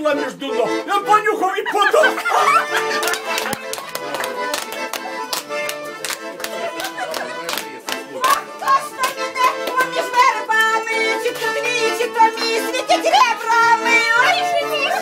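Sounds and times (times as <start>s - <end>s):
accordion folk dance tune: 0.0s - 15.0s
rhythmic hand clapping: 2.1s - 15.0s
woman singing: 8.2s - 15.0s.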